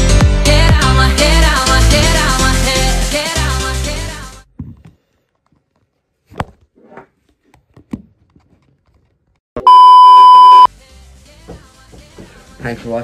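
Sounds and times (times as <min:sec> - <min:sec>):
test-tone beep: 0:09.6 - 0:10.7.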